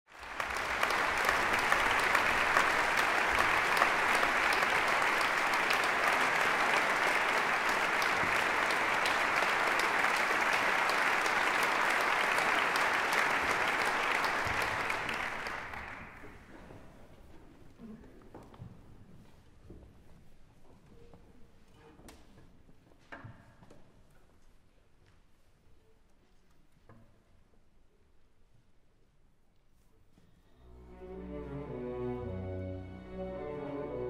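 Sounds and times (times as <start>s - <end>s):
audience applauding: 0.1s - 16.6s.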